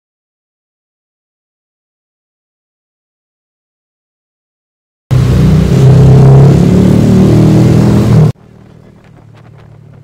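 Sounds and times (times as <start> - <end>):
vehicle engine running: 5.1 - 10.0.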